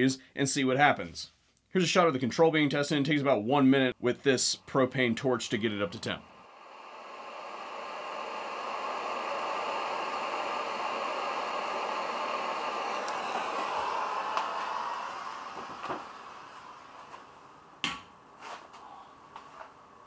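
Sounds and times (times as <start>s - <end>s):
torch flame hissing: 5.1s - 20.0s.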